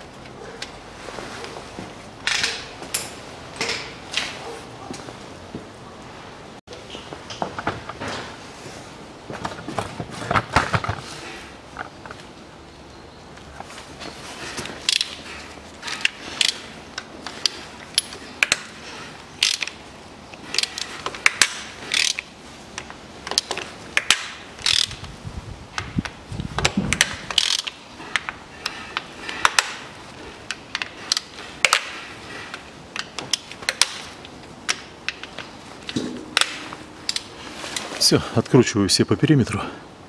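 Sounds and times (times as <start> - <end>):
socket ratchet clicking: 20.5 - 22.3, 23.4 - 25.0, 26.9 - 27.8.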